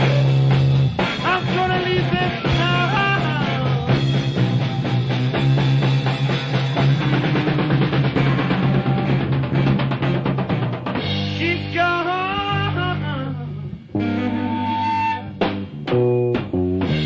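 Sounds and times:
drums pounding: 0.0s - 12.8s, 15.4s - 17.0s
bass guitar note: 0.0s - 17.0s
electric guitar bending notes: 0.0s - 17.0s
band hits: 15.3s - 17.0s.

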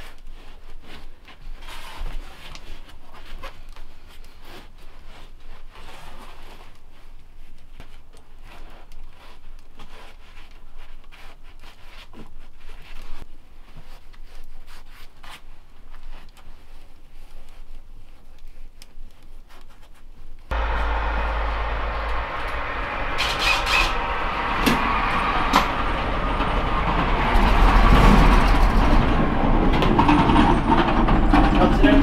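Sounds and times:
insulation rustling and scraping: 0.0s - 32.0s.

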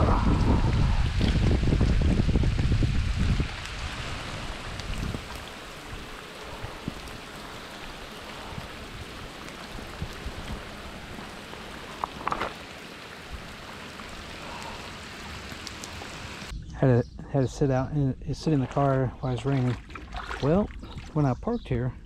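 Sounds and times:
heavy rain on pond: 0.0s - 16.5s.

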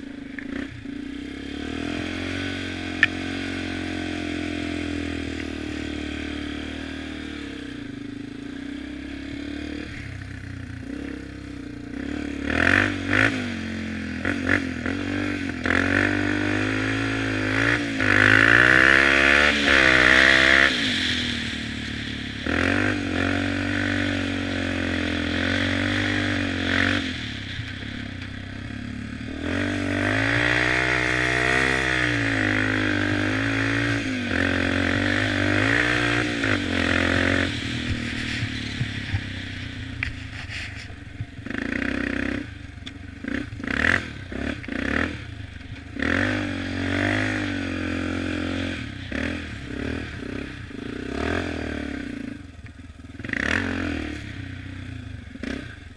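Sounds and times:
quad engine revving: 0.0s - 55.9s.

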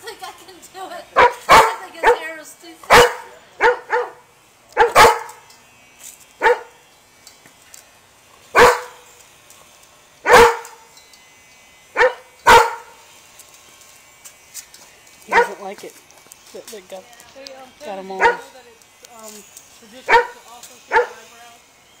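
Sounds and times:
large dog barking: 1.2s - 2.2s, 2.9s - 4.2s, 4.8s - 5.4s, 6.4s - 6.7s, 8.6s - 9.0s, 10.3s - 10.8s, 12.0s - 13.0s, 15.3s - 15.6s, 18.2s - 18.5s, 20.1s - 21.2s.

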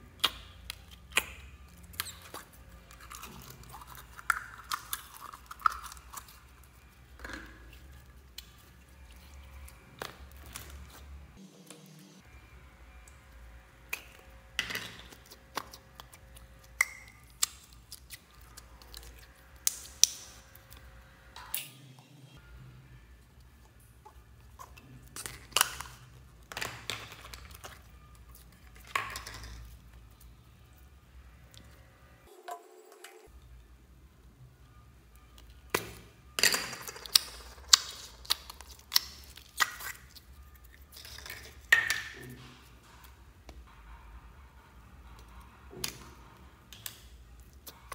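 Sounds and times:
slime squishing: 0.0s - 11.4s, 14.9s - 20.9s, 24.0s - 30.2s, 36.9s - 42.8s
slime popping and squelching: 36.6s - 42.3s.

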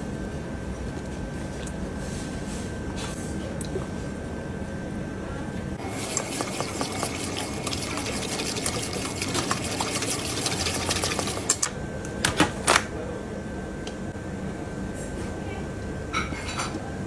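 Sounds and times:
whisk beating in metal bowl: 5.8s - 11.6s.

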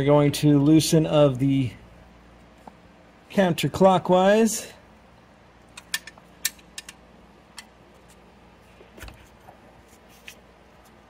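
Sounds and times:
wrench metallic clicks: 5.8s - 7.0s.

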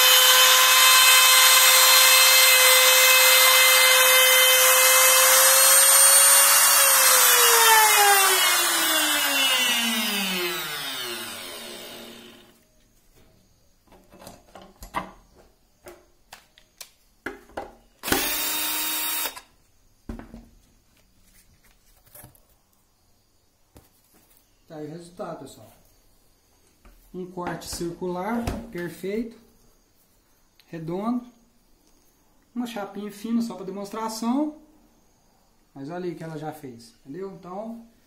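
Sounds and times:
trim router whining: 0.0s - 12.6s, 18.0s - 19.5s.

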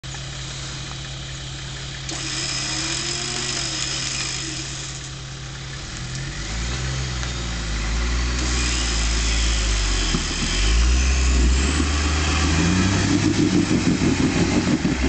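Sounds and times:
engine idling: 0.0s - 15.0s
winch motor whining: 2.1s - 5.2s, 8.4s - 12.7s.

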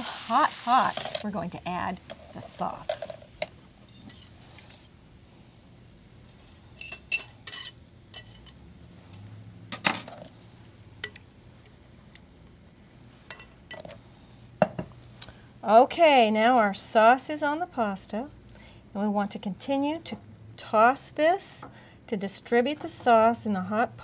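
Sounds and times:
utensils clinking against bowl: 2.2s - 3.2s, 6.3s - 8.6s.

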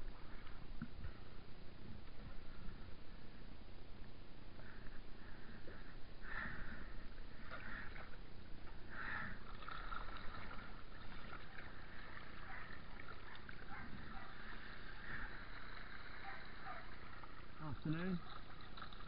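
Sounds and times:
water sloshing along hull: 6.4s - 19.0s.

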